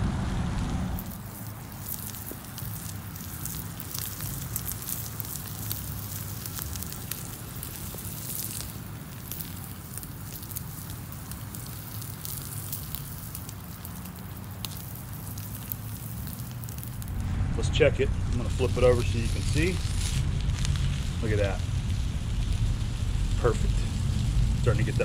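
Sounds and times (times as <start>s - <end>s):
low steady rumble: 0.0s - 1.5s, 13.2s - 25.0s
steak sizzling on a grill: 1.0s - 17.2s, 18.6s - 25.0s.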